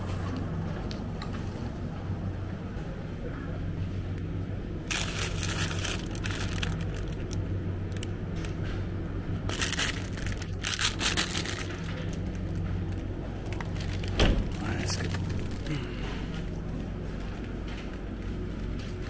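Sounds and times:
steady low hum: 0:00.0 - 0:19.0
plastic packaging crinkling: 0:04.8 - 0:08.6, 0:09.5 - 0:16.4.

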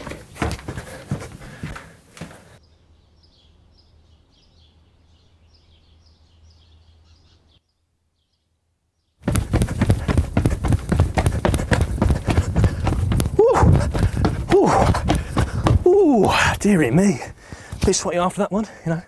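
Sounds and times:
loud running footsteps: 0:00.0 - 0:02.5, 0:09.2 - 0:18.4
faint birds chirping: 0:00.2 - 0:10.6.

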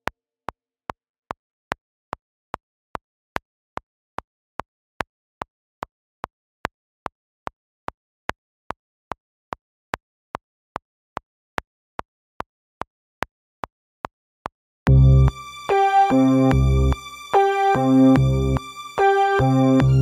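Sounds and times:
sharp evenly spaced ticking: 0:14.9 - 0:20.0.

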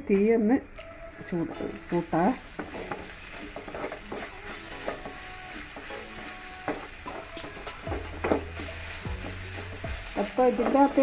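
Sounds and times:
onions sizzling in oil: 0:00.1 - 0:11.0
wooden spatula scraping pan: 0:01.4 - 0:11.0.

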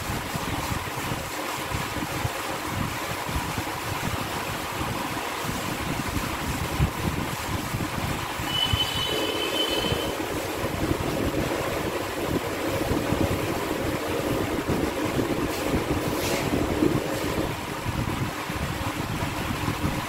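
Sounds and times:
duster rubbing on blackboard: 0:08.5 - 0:10.5, 0:15.5 - 0:16.5.

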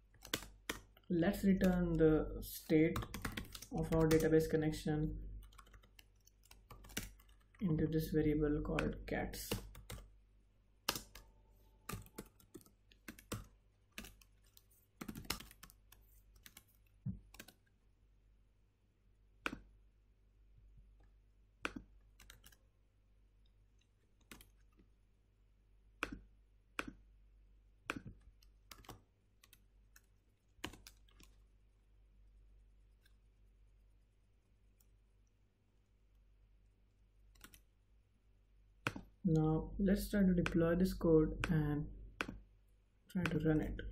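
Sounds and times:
computer keyboard typing: 0:00.0 - 0:02.1, 0:02.7 - 0:04.6, 0:05.2 - 0:07.6, 0:08.6 - 0:10.2, 0:10.8 - 0:17.7, 0:21.6 - 0:22.7, 0:23.8 - 0:24.8, 0:26.0 - 0:27.0, 0:27.8 - 0:31.5, 0:37.2 - 0:37.7.

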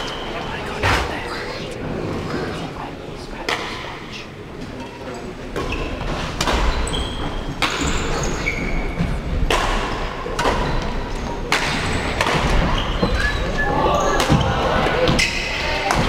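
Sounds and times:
shoes squeaking on floor: 0:04.8 - 0:09.3, 0:12.6 - 0:15.9
racket hitting shuttlecock: 0:09.4 - 0:10.8.

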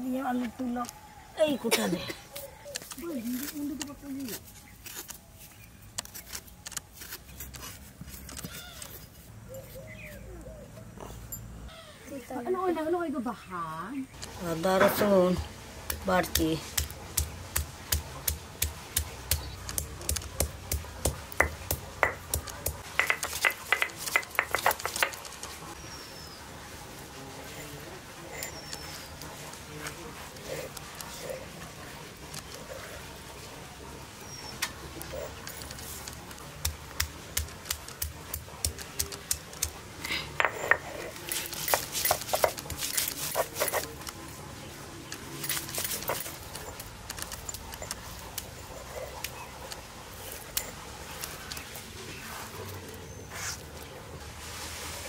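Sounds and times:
garlic crunching and scraping: 0:02.4 - 0:10.2, 0:34.6 - 0:44.3, 0:45.1 - 0:53.8
stone pestle pounding garlic: 0:15.9 - 0:25.3, 0:36.6 - 0:39.8, 0:40.4 - 0:43.9.

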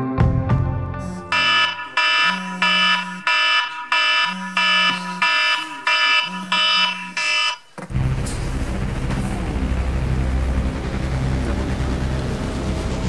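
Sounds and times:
phone alarm tones: 0:01.1 - 0:07.7
phone vibrating on wood: 0:01.3 - 0:07.6.

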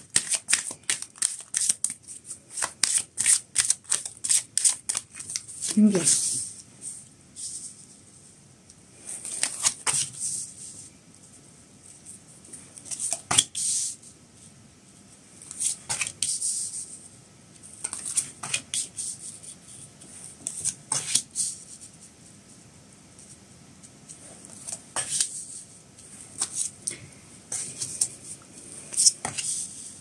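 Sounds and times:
cards snapping and sliding: 0:00.1 - 0:05.4.

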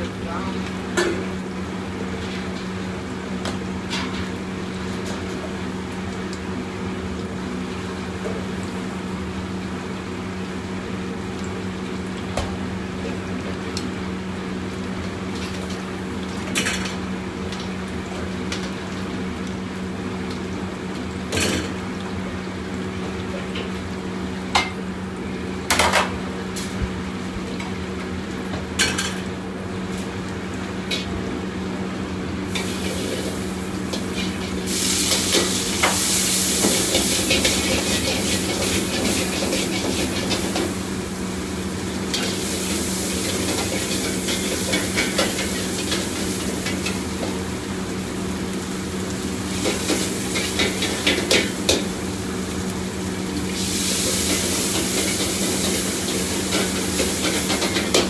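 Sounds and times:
wok range and extraction hum: 0:00.0 - 0:58.0
utensils clanking on pots: 0:28.8 - 0:29.3, 0:32.5 - 0:40.8, 0:42.1 - 0:47.4, 0:49.5 - 0:52.0, 0:53.9 - 0:58.0.

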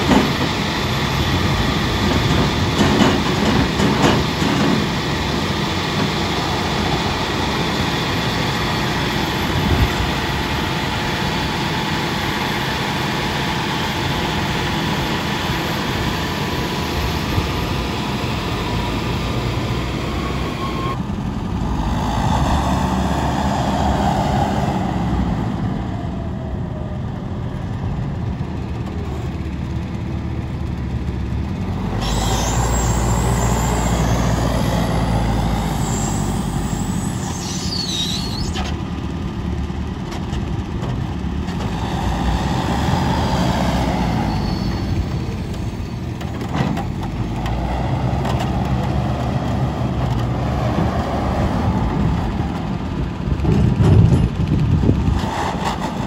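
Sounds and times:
high-pitched squeal: 0:00.0 - 0:27.0, 0:31.8 - 0:38.8, 0:41.6 - 0:46.2
diesel engine under load: 0:00.0 - 0:56.0.

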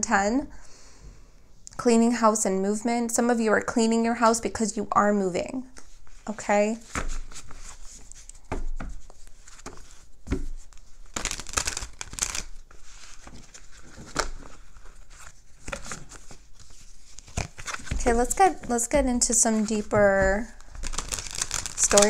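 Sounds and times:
cards being shuffled: 0:06.8 - 0:22.0
cards falling between hands: 0:08.3 - 0:12.5, 0:17.3 - 0:22.0.

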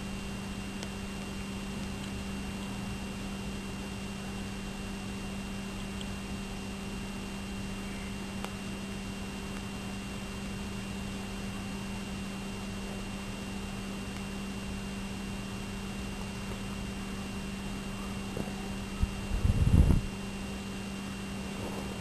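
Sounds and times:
faint high whine: 0:00.0 - 0:22.0
low electrical hum: 0:00.0 - 0:22.0
steady hiss: 0:21.0 - 0:22.0.

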